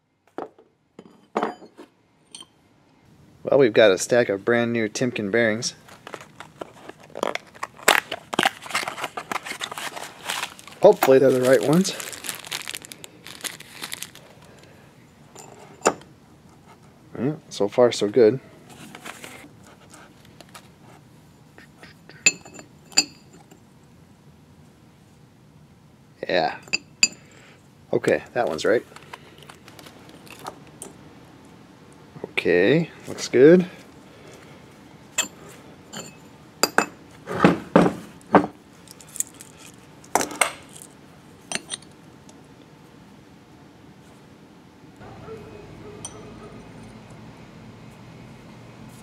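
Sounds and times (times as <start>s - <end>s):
metal bearings clinking and knocking: 0.4s - 2.5s, 22.2s - 23.6s, 35.2s - 37.0s, 41.5s - 42.0s
ringing metal clinks: 46.0s - 47.0s.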